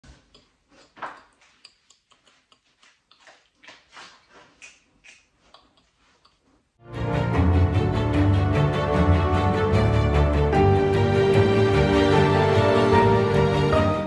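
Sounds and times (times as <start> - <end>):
taps and rustles of dancing: 0.1 - 6.5.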